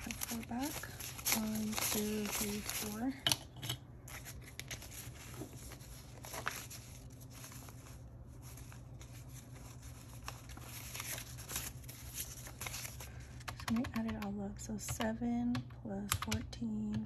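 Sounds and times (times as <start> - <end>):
paper bills rustling and flicking: 0.0 - 3.2, 4.1 - 13.5.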